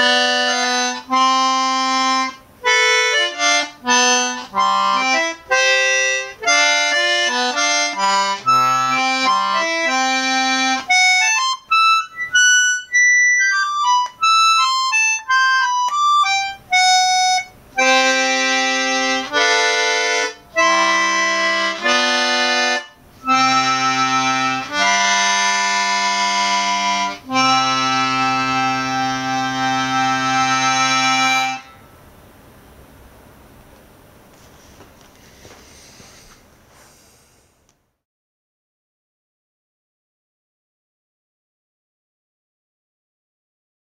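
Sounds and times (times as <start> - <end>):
concertina playing: 0.0 - 31.8.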